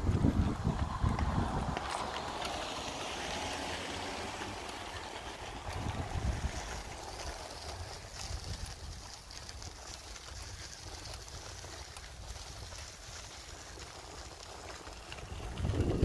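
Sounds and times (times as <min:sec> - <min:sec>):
wind buffeting microphone: 0:00.0 - 0:09.7, 0:14.9 - 0:16.0.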